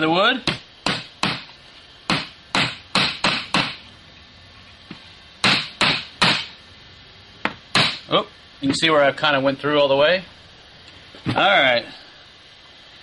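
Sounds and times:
hammer driving nail into wood: 2.1s - 3.8s, 5.4s - 6.5s.

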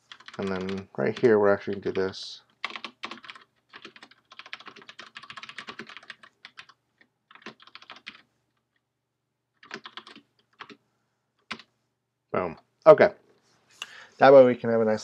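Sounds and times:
computer keyboard typing: 0.1s - 8.7s, 9.6s - 10.8s, 11.4s - 11.7s.

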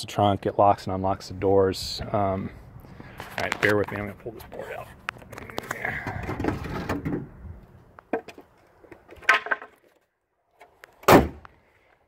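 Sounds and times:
wooden board scraping: 6.1s - 7.3s
wooden board knocks and clatter: 9.1s - 10.0s.

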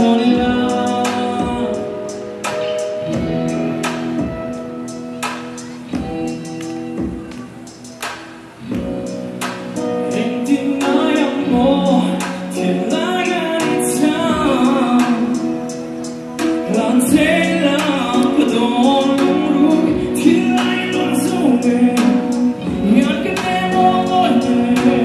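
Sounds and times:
man singing into microphone: 0.0s - 3.6s, 9.8s - 25.0s
instrumental accompaniment: 0.0s - 25.0s.

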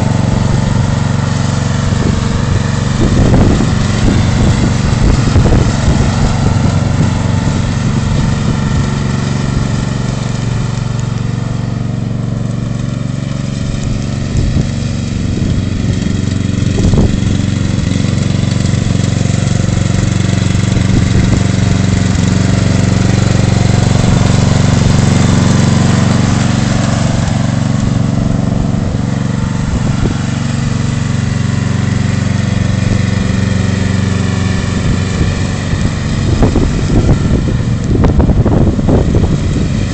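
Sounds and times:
lawn mower engine running: 0.0s - 39.9s.

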